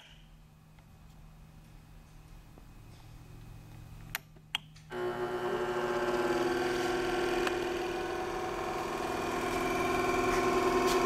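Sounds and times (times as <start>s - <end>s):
belt sander motor humming: 4.9s - 11.0s.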